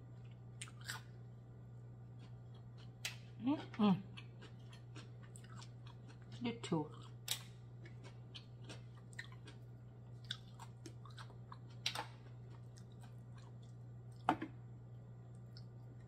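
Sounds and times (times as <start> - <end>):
steady low hum: 0.0 - 16.0
chewing mussels: 0.2 - 1.2, 2.1 - 16.0.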